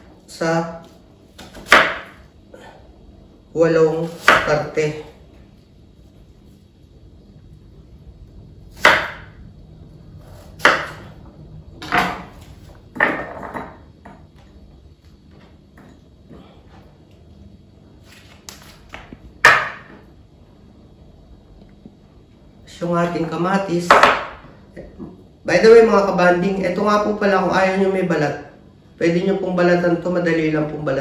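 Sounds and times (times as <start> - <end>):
knife chopping on wooden board: 1.4 - 2.2, 4.1 - 4.6, 8.8 - 9.3, 10.6 - 11.1, 18.5 - 20.0.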